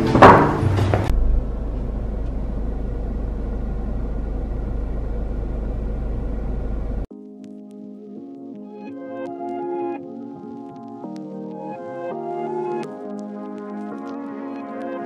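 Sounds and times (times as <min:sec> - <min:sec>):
low outdoor rumble: 0:00.6 - 0:07.1
music track: 0:07.1 - 0:15.0
soft ambient music: 0:07.1 - 0:15.0.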